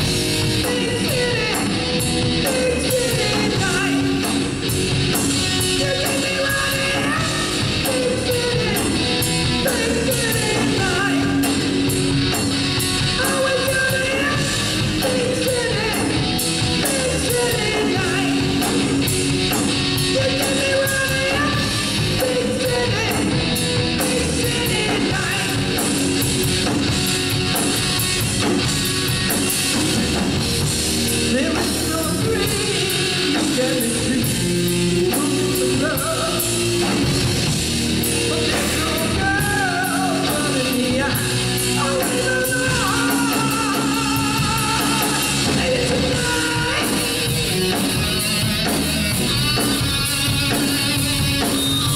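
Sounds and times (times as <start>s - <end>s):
bass guitar: 0.0s - 51.9s
drum kit with cymbal hits: 0.0s - 51.9s
electric guitar: 0.0s - 51.9s
man singing: 2.4s - 4.4s, 5.7s - 11.8s, 13.1s - 18.8s, 20.0s - 26.0s, 31.3s - 36.9s, 38.2s - 47.4s.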